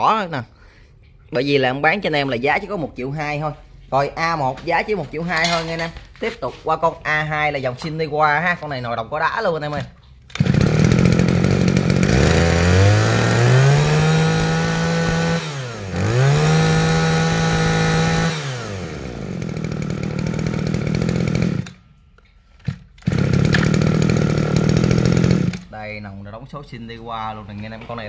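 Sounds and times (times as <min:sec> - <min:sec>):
brush-cutter engine revving: 0:10.3 - 0:21.8, 0:22.7 - 0:25.7.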